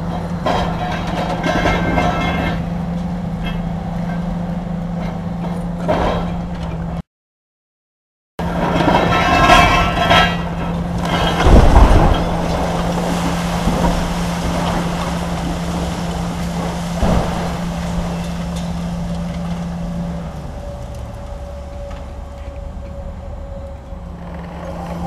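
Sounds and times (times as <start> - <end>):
excavator diesel engine droning: 0.0 - 7.0, 8.4 - 25.0
concrete crashing down: 11.1 - 18.4.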